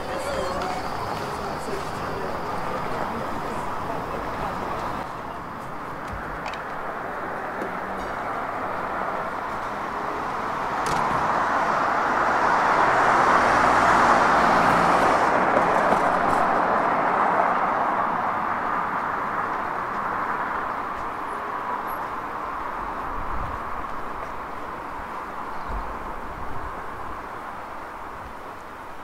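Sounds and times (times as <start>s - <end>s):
car driving past: 8.6s - 19.2s.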